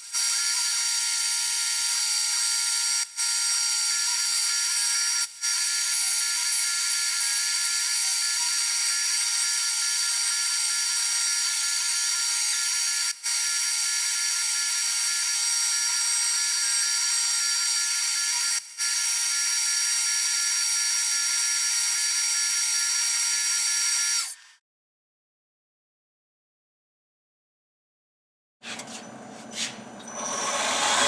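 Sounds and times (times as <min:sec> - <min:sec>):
mill spindle whining: 0:28.7 - 0:31.0.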